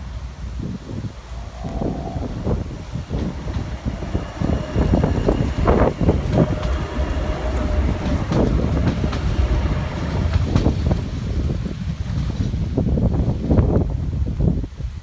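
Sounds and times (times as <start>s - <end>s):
faint steady whine: 0.0s - 11.6s
tram wheels rumbling on rail: 0.0s - 14.8s.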